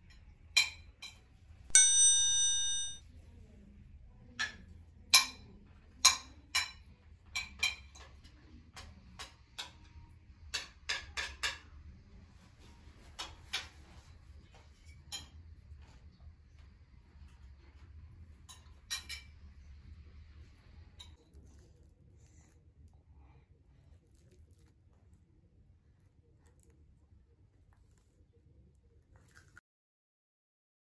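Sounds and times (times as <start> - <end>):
spoons clinking on plates: 0.6 - 3.0, 18.4 - 19.4.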